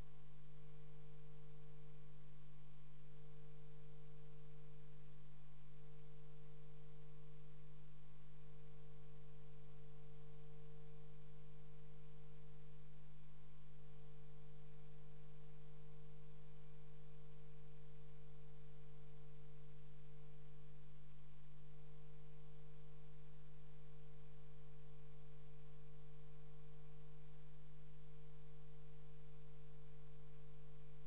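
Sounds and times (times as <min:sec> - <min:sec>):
faint high whine: 0:00.0 - 0:31.0.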